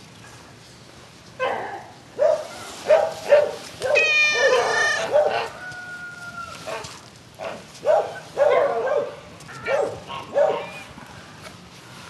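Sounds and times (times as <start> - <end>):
cats meowing: 3.8 - 5.5
rooster crowing: 4.3 - 6.7.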